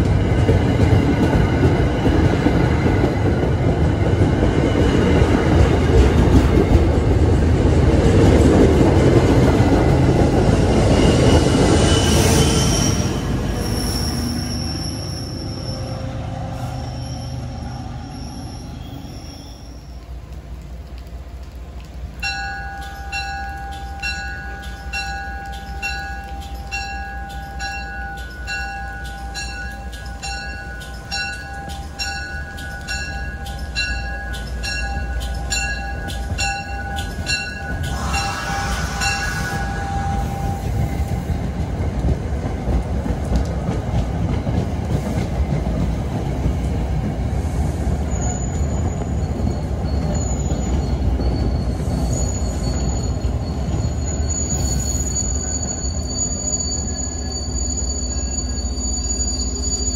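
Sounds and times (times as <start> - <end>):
train wheels clattering on rails: 0.0 - 14.5, 22.2 - 57.6
high steady wheel squeal: 10.7 - 20.0, 36.8 - 41.5, 47.6 - 59.9
train bell ringing: 10.8 - 16.0, 22.2 - 41.5, 48.2 - 59.9.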